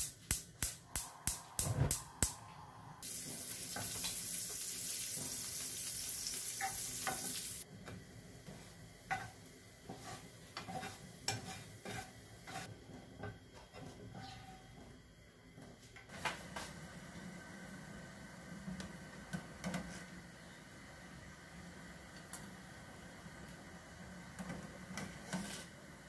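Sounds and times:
bread sizzling in butter: 0:03.0 - 0:07.7
wooden spatula scraping a pan: 0:08.5 - 0:12.8.

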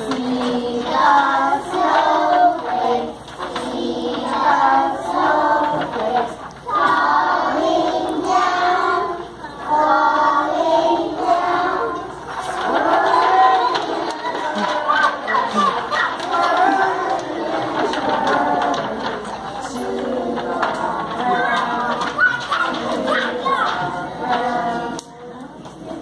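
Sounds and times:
young children singing: 0:00.0 - 0:26.0.

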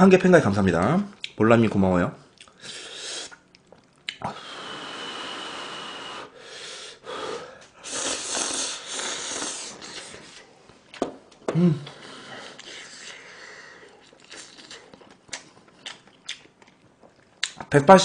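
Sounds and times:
person slurping noodles: 0:04.2 - 0:06.4, 0:07.8 - 0:10.5.

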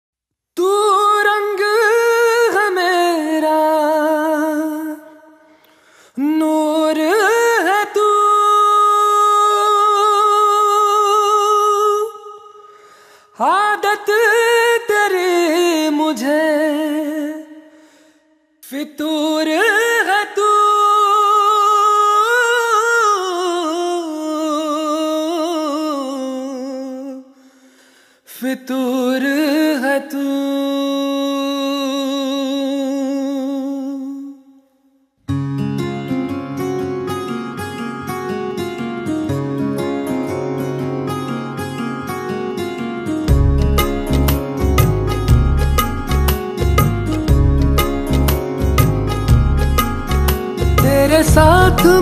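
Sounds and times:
person singing wordless melody: 0:00.6 - 0:34.9, 0:35.7 - 0:52.0
person humming: 0:50.8 - 0:52.0.

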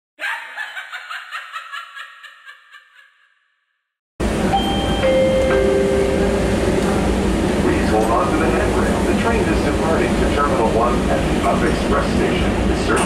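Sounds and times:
pulsing laugh sound effect: 0:00.2 - 0:03.5
train rumble with whining tones: 0:04.2 - 0:13.0.

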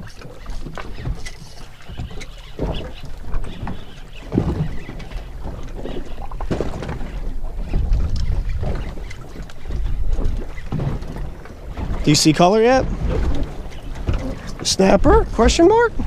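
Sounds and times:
water washing against boat hull: 0:00.0 - 0:16.0
wind buffeting microphone: 0:00.0 - 0:16.0.

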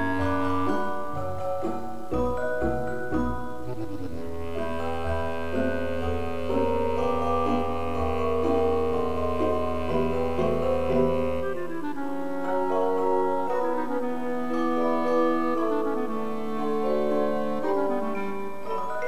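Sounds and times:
instrumental background music: 0:00.0 - 0:19.0.

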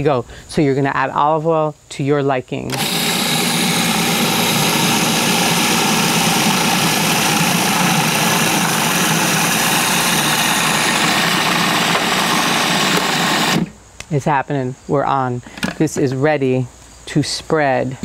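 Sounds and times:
food processor motor running: 0:02.7 - 0:13.7.

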